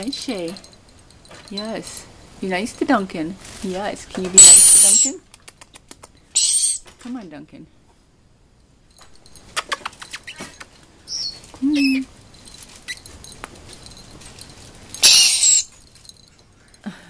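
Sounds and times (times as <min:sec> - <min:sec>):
parrot harsh screech: 0:04.4 - 0:05.2, 0:06.4 - 0:06.8, 0:15.0 - 0:15.7
parrot high chirp: 0:04.4 - 0:05.2, 0:06.3 - 0:06.9, 0:09.7 - 0:12.1, 0:15.0 - 0:15.8
parrots clicking and rattling: 0:08.9 - 0:11.6, 0:12.2 - 0:16.8.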